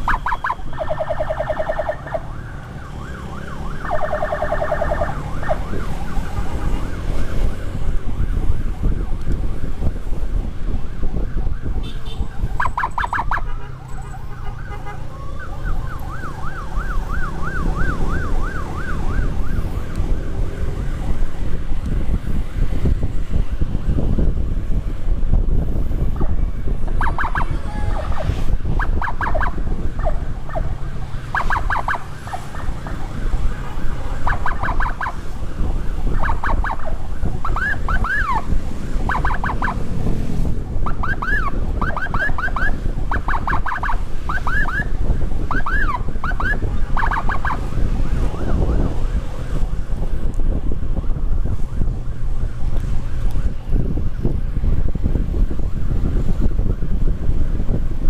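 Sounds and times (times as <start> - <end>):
electronic siren chirping: 0.0 - 7.8, 12.3 - 21.3, 26.9 - 40.0, 40.8 - 50.0
motorcycle rumble: 0.0 - 58.0
wind on microphone: 0.0 - 58.0.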